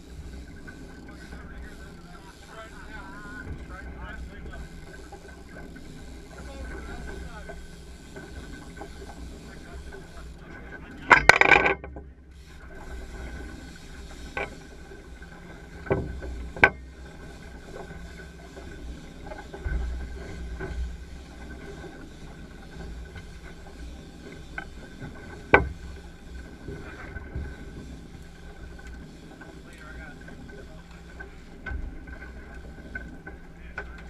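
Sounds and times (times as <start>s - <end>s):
boat low rumble: 0.0s - 34.0s.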